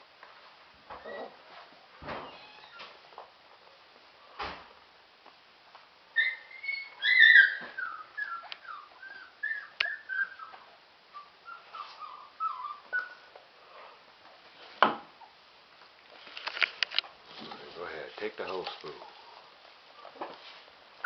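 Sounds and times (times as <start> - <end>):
puppies whining and yipping: 6.1 - 13.4.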